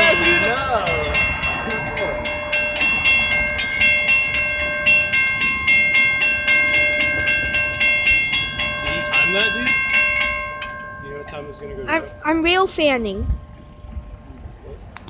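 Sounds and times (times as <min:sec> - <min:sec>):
crossing bell ringing: 0:00.0 - 0:14.3.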